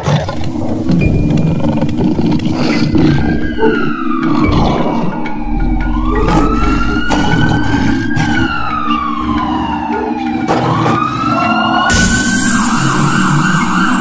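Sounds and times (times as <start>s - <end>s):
low steady drone: 0.3s - 14.0s
siren-like wail: 0.3s - 14.0s
loud rush of hiss: 11.9s - 14.0s.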